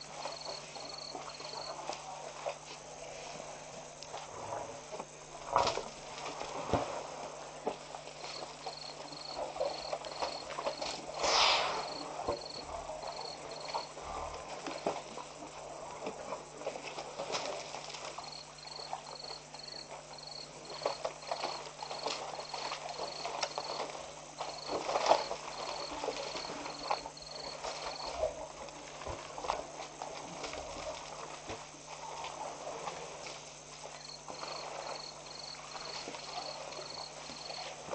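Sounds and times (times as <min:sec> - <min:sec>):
insect chirping: 0:00.0 - 0:28.7, 0:29.6 - 0:37.9
elephants scuffing in dust: 0:08.3 - 0:13.9.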